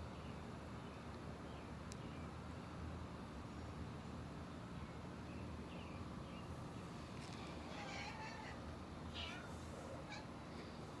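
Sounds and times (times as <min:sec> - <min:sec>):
cats meowing: 0:07.7 - 0:10.4.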